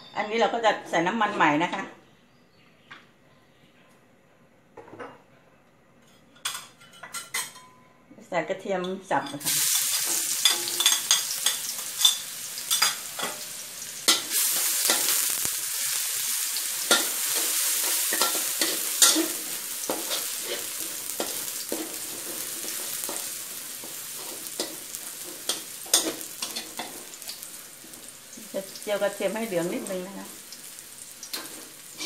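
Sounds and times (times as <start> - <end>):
metal spatula scraping pan: 9.3 - 15.3, 16.8 - 28.1
garlic sizzling in hot oil: 9.3 - 32.0.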